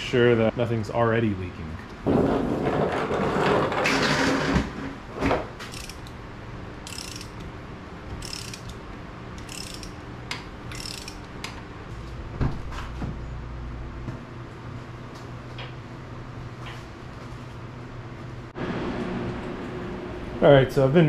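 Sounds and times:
ratchet wrench clicking: 5.7s - 6.2s, 6.8s - 7.5s, 8.2s - 8.8s, 9.4s - 10.0s, 10.7s - 11.6s.

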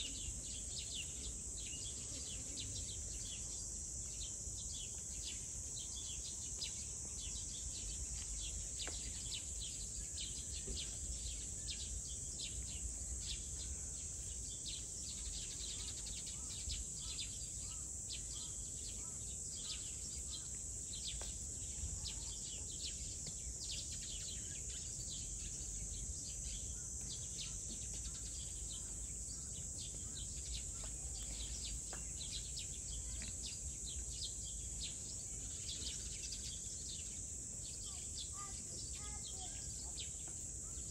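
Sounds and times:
high insect drone: 0.0s - 40.9s.

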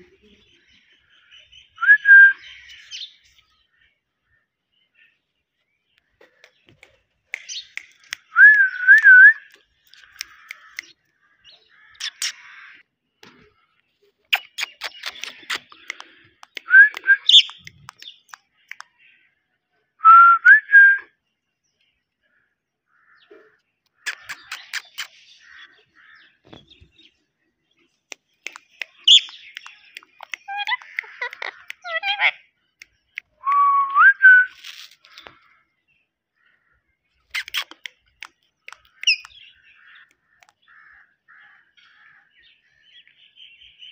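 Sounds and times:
parakeet chirps and clicks: 6.4s - 11.0s, 11.9s - 12.5s, 14.3s - 19.0s, 23.9s - 25.3s, 28.0s - 33.4s, 37.2s - 40.8s.

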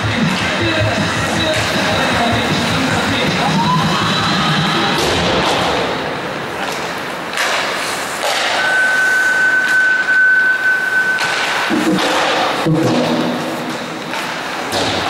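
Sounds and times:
crowd chatter echoing: 0.0s - 8.5s
sticks and puck hitting boards: 0.2s - 3.5s, 4.9s - 8.8s, 11.1s - 15.0s
steady high tone: 8.6s - 11.7s.

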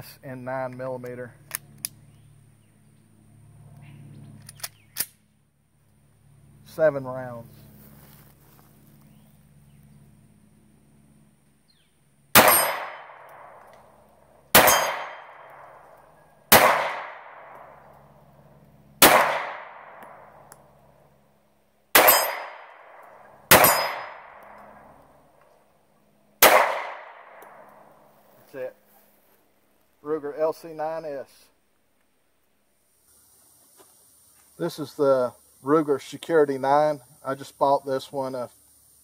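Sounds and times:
pistol shots with echo: 12.3s - 13.7s, 14.5s - 15.8s, 16.5s - 17.9s, 19.0s - 20.5s, 21.9s - 25.0s, 26.4s - 27.8s.

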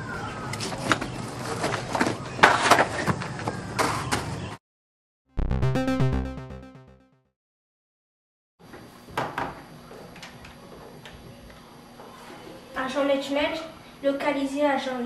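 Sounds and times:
short musical chord sting: 5.4s - 7.2s.

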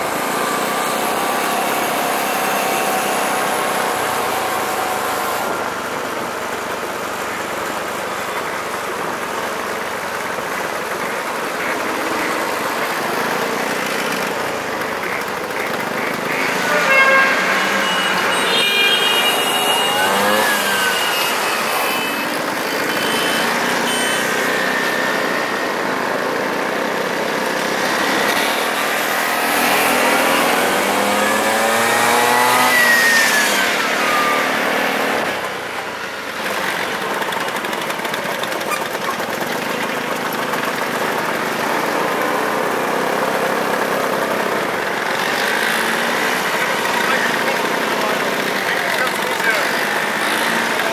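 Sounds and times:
motorcycle engines accelerating: 0.0s - 50.9s.

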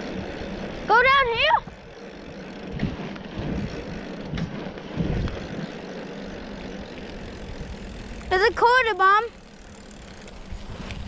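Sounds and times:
wind buffeting microphone: 0.0s - 8.8s
low rumbles: 0.0s - 11.0s.

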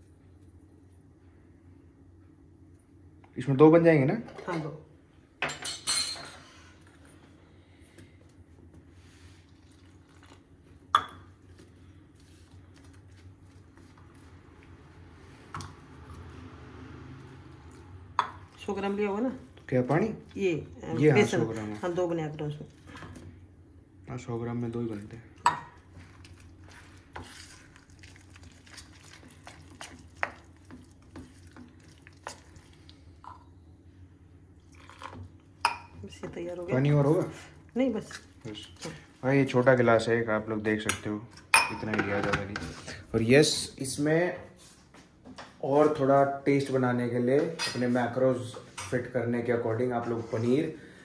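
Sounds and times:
kitchenware clinking: 5.4s - 6.6s, 40.8s - 42.8s, 47.5s - 47.9s
batter squishing: 8.2s - 16.3s, 24.9s - 33.2s.

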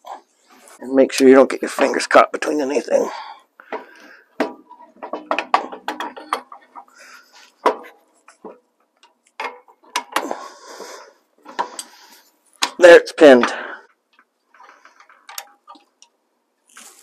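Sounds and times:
metallic clicks and knocks: 3.7s - 10.4s, 13.4s - 16.2s.

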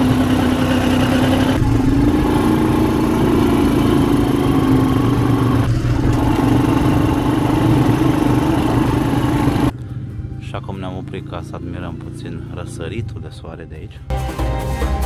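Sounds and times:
quad bike engine droning: 0.0s - 13.2s.

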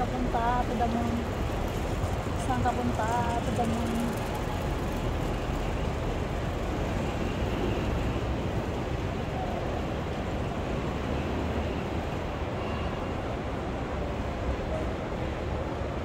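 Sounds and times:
trolley wheels rumbling on tiles: 0.0s - 6.7s.

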